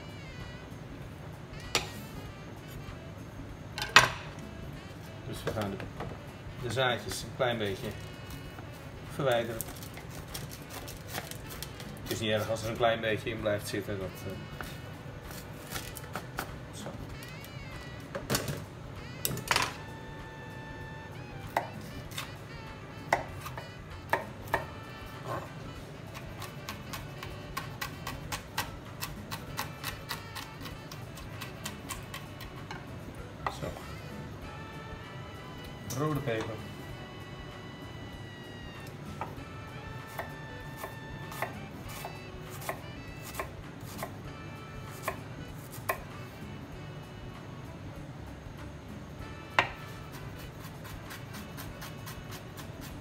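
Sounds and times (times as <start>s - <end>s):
knife tapping on cutting board: 49.6s - 49.8s.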